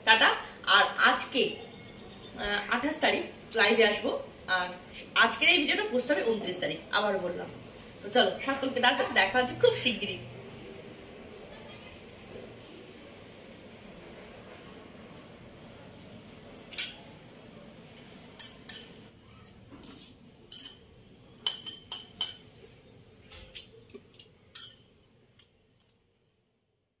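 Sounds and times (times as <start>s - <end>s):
faint steady hiss: 0.0s - 26.6s
metal spoon clinking on dish: 16.7s - 17.1s, 18.0s - 19.0s, 19.8s - 22.5s, 23.3s - 24.9s.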